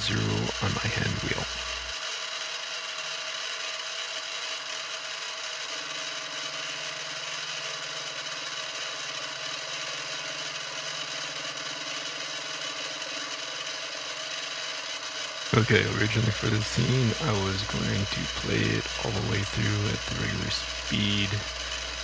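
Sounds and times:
low hum: 0.0 - 1.9, 15.5 - 22.0
milling machine motor whine: 0.0 - 22.0.

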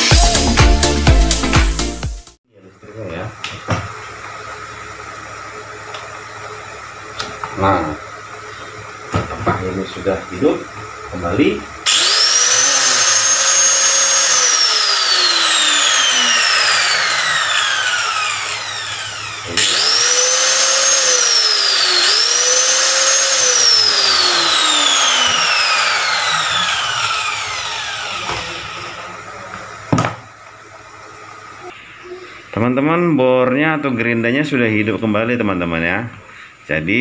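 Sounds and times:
angle grinder whining: 3.0 - 32.1.

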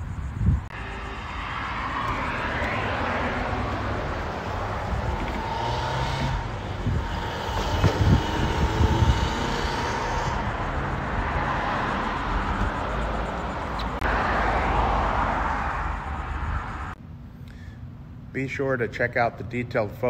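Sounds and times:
wind buffeting microphone: 0.0 - 14.0
outdoor rushing noise: 0.0 - 17.1.

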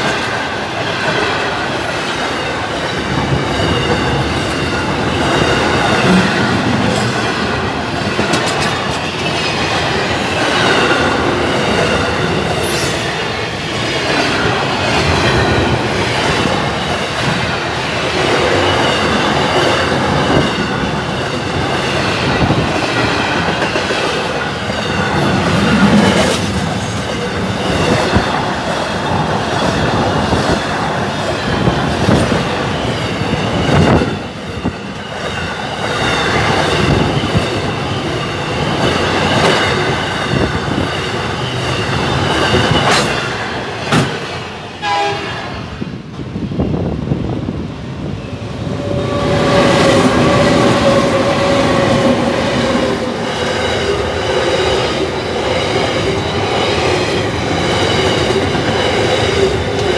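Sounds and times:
freight train wagons rolling: 0.0 - 44.7.

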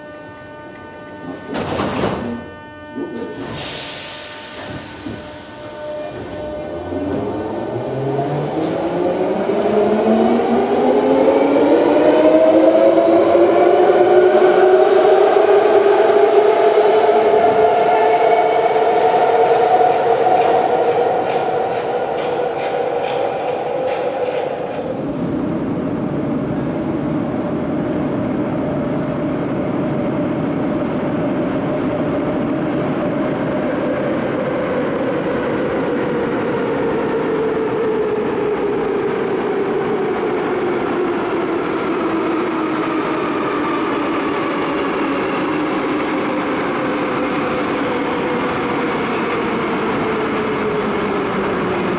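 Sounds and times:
train traction motor whine: 0.0 - 24.9
train rumbling through tunnel: 0.0 - 51.9
train wheels clicking: 19.6 - 25.0.

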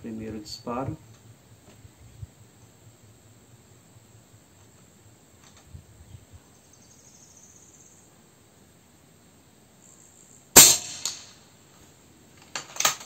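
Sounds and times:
insect chirping and trilling: 1.0 - 11.4.

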